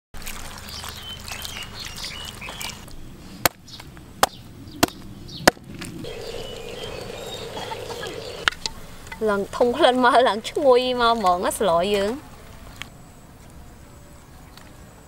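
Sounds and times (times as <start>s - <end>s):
small birds chirping: 0.7s - 3.0s, 3.6s - 8.5s.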